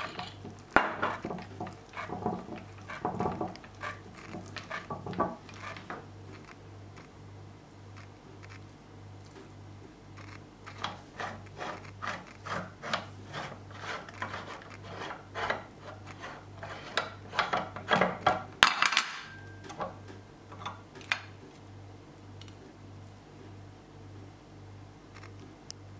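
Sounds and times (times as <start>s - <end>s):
metal scraping and rubbing: 0.0s - 6.1s, 10.7s - 18.4s.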